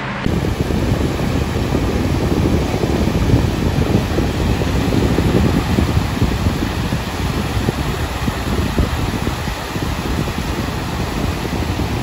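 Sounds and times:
wind on microphone: 0:00.0 - 0:12.0
small waves washing on sand: 0:00.3 - 0:12.0.

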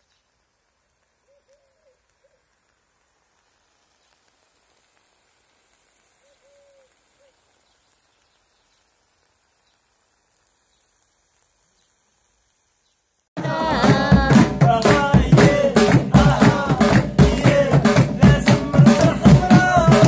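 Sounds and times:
faint outdoor ambience: 0:00.0 - 0:20.0
low bird call: 0:01.2 - 0:02.5, 0:06.2 - 0:08.9
loud music with drums: 0:13.4 - 0:20.0.

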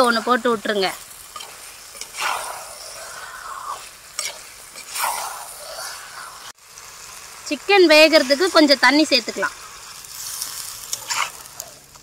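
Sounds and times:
spatula scraping pan: 0:00.0 - 0:06.0, 0:09.4 - 0:12.0
food sizzling: 0:00.0 - 0:12.0.

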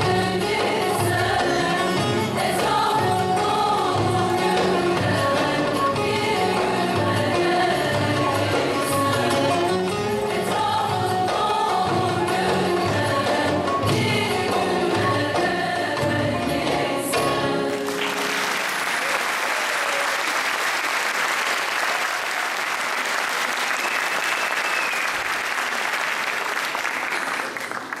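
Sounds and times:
women's choir singing: 0:00.0 - 0:18.4
audience applause: 0:17.7 - 0:28.0.

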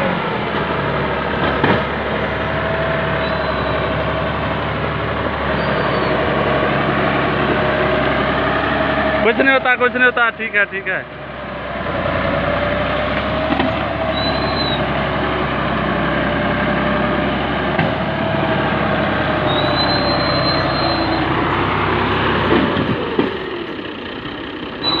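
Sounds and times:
tractor diesel engine under load: 0:00.0 - 0:25.0
brief high squeal: 0:03.2 - 0:03.9, 0:05.6 - 0:06.2, 0:14.1 - 0:14.8, 0:19.5 - 0:21.3.

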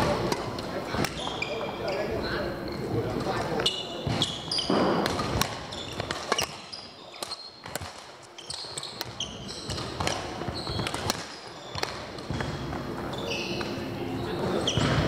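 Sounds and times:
shoes squeaking on court floor: 0:00.0 - 0:15.0
racket striking shuttlecock: 0:04.0 - 0:13.0.

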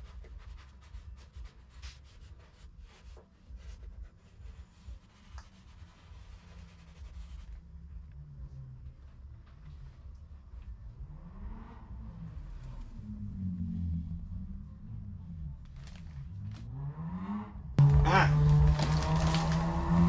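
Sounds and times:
squeegee rubbing on decal: 0:00.0 - 0:07.6
steady low rumble: 0:00.0 - 0:16.8.

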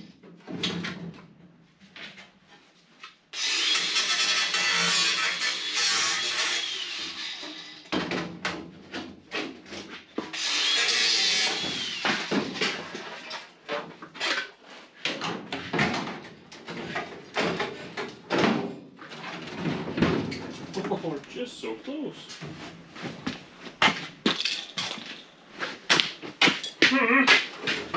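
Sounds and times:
grating metal scrape: 0:03.4 - 0:07.8
metal panel clunks and knocks: 0:19.4 - 0:20.8.

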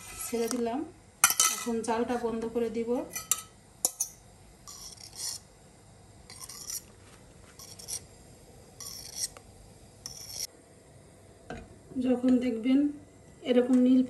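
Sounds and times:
metal spoon scraping a pot: 0:00.0 - 0:00.6, 0:03.1 - 0:05.5, 0:06.3 - 0:06.9, 0:07.6 - 0:08.1, 0:08.8 - 0:09.4, 0:10.0 - 0:10.5.

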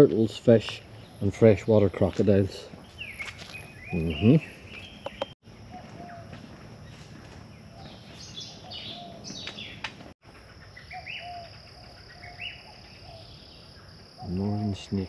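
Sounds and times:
birds chirping and calling: 0:00.0 - 0:15.0
high insect drone: 0:03.5 - 0:15.0.

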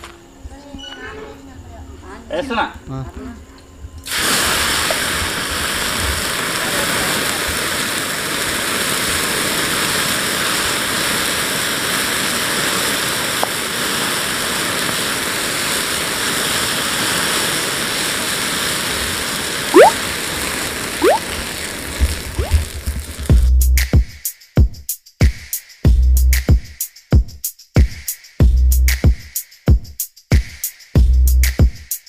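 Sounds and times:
flame rushing: 0:04.0 - 0:23.4
short rising whistles: 0:19.8 - 0:20.0, 0:21.0 - 0:21.2.

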